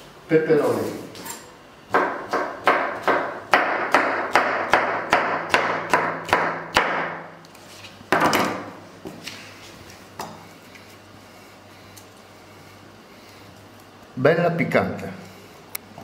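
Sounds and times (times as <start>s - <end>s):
knife chopping on plastic board: 1.9s - 7.3s.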